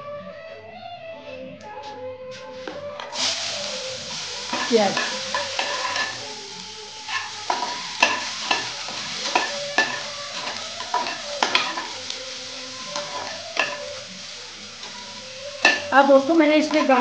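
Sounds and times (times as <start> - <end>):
onions sizzling in oil: 3.0 - 17.0
spoon scraping against pot: 4.2 - 6.4, 7.0 - 16.0.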